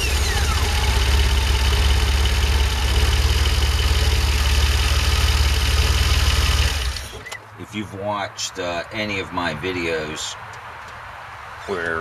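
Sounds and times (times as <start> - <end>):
car engine idling: 0.0 - 7.5.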